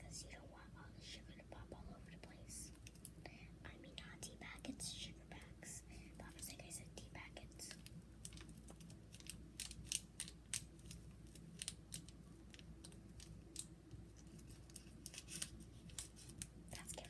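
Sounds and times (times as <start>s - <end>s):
crisp clicks and snips: 2.7s - 3.2s, 7.5s - 17.0s.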